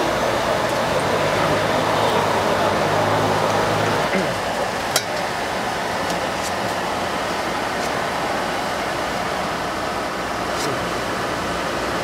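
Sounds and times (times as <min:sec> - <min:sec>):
indistinct voices: 0:00.0 - 0:08.1
background traffic: 0:00.0 - 0:12.0.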